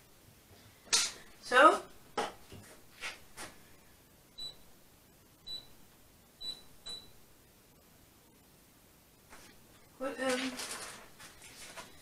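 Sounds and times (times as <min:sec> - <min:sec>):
electric hob control beeps: 0:04.4 - 0:04.7, 0:05.5 - 0:05.8, 0:06.4 - 0:07.2.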